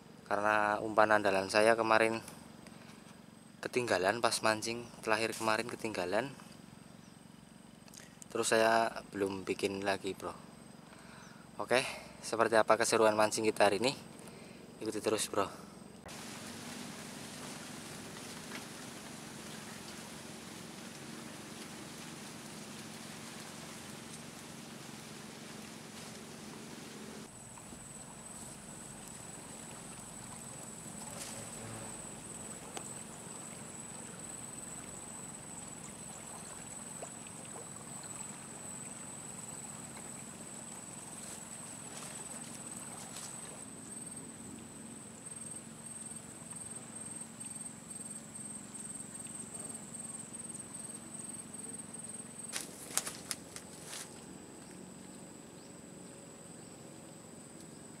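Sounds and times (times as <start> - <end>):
insects buzzing high-pitched: 0.0 - 58.0
steady low hum: 0.0 - 58.0.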